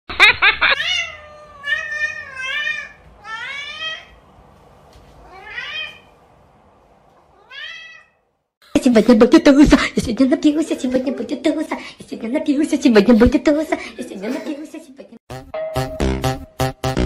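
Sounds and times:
cat meowing: 0:00.8 - 0:04.2, 0:05.2 - 0:06.1, 0:07.3 - 0:08.2.

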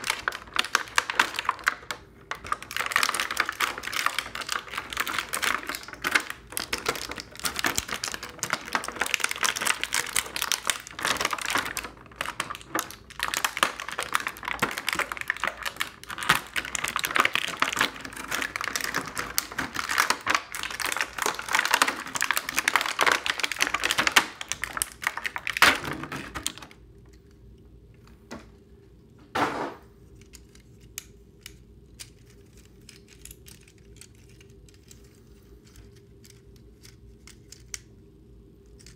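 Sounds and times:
plastic packaging crinkling: 0:00.0 - 0:27.3.

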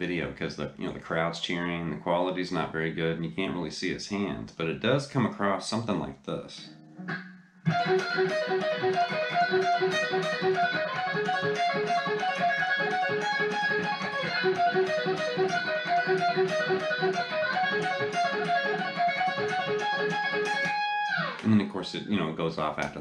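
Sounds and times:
electric guitar lick: 0:06.5 - 0:23.0.

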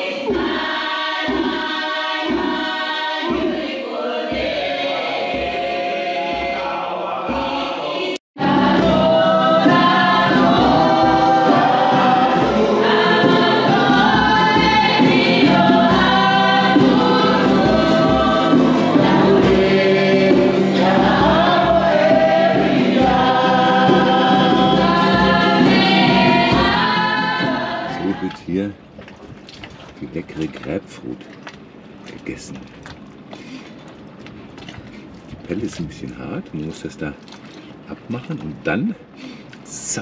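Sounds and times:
congregation singing a hymn: 0:00.0 - 0:28.4.

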